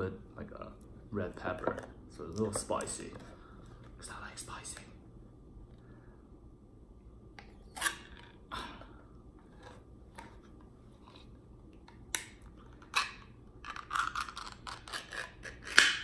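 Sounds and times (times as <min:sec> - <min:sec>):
can lid tearing with crackling: 0:12.1 - 0:16.0.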